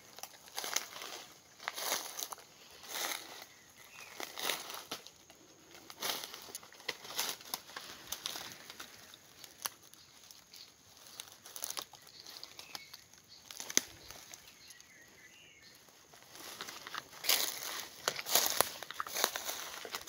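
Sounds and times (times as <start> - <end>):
footsteps on dry leaf litter: 0.0 - 20.0
twig snapping: 5.9 - 9.8, 13.5 - 14.9.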